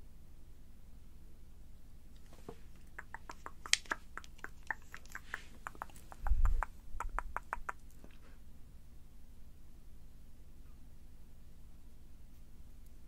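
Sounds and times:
wet lip smacks and tongue clicks: 0:02.8 - 0:08.2.

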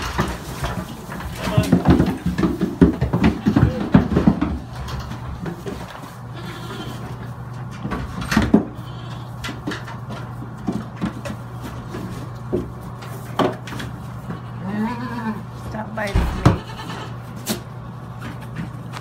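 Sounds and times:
knocks and thumps: 0:00.0 - 0:05.9, 0:16.1 - 0:16.8
goat kids bleating: 0:03.2 - 0:04.1, 0:06.2 - 0:07.3, 0:08.6 - 0:09.6, 0:14.0 - 0:17.4.

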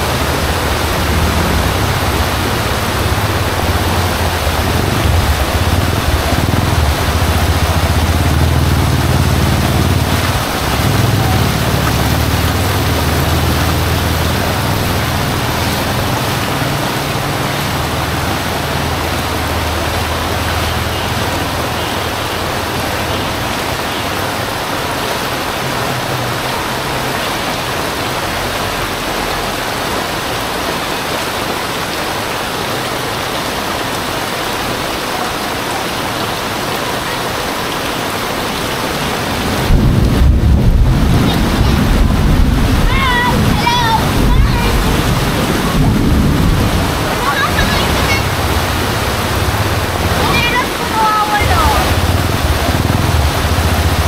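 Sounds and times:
deep low rumble: 0:00.0 - 0:16.5
heavy rain pouring: 0:00.0 - 0:54.0.

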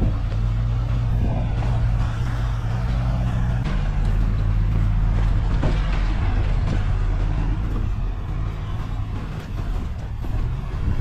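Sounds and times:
tyre and road noise: 0:00.0 - 0:11.0
vehicle engine droning: 0:00.0 - 0:11.0
knocks from bumps: 0:03.5 - 0:11.0.

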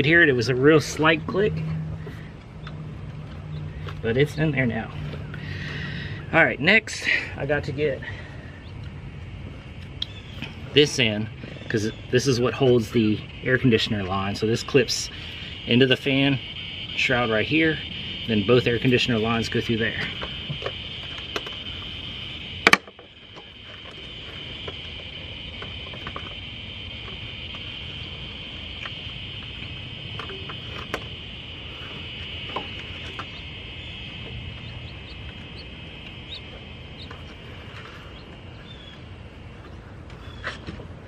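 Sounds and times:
insects droning: 0:00.0 - 0:41.0.

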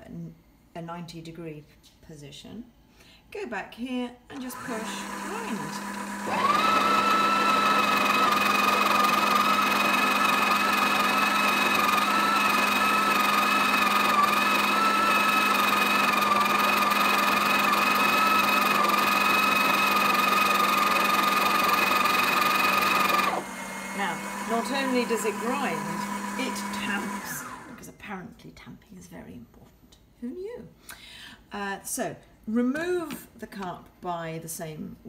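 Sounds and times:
coffee grinder whining: 0:04.3 - 0:27.9.

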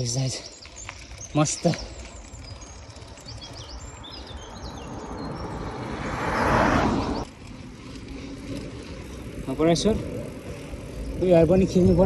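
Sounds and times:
bicycle rolling rumble: 0:00.0 - 0:12.0
birds chirping: 0:00.0 - 0:12.0
car passing by: 0:04.5 - 0:07.3.

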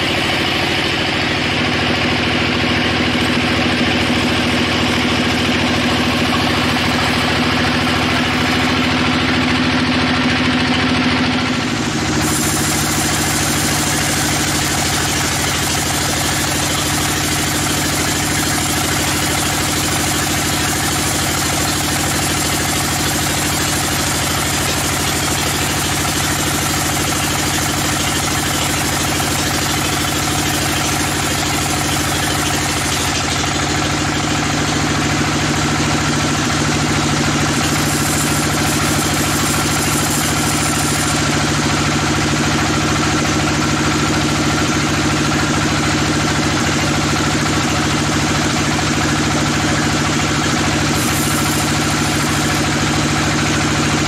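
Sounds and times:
band saw ripping through log: 0:11.9 - 0:34.4, 0:37.2 - 0:41.6, 0:50.6 - 0:53.7.

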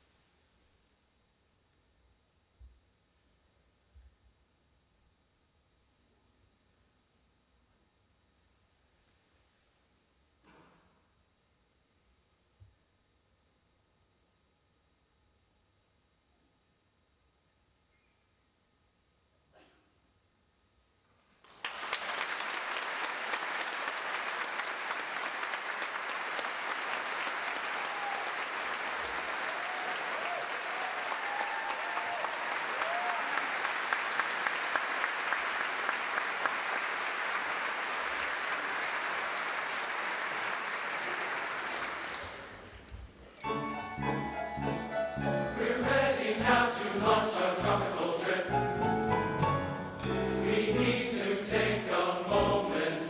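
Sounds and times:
audience applauding: 0:21.5 - 0:42.9
instrumental music: 0:43.4 - 0:52.9.

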